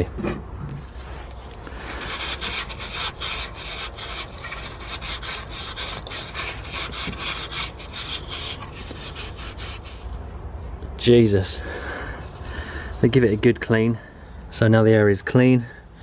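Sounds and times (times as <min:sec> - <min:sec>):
wipe scrubbing metal: 0:01.9 - 0:10.1.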